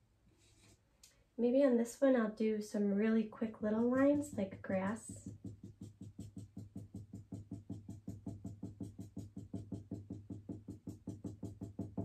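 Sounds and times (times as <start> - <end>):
marker tapping on paper: 3.8 - 12.0.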